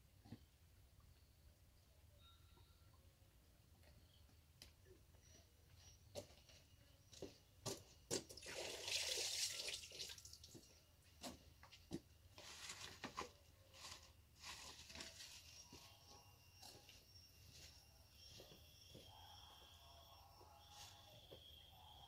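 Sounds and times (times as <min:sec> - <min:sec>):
liquid pouring and splashing: 0:08.4 - 0:10.5.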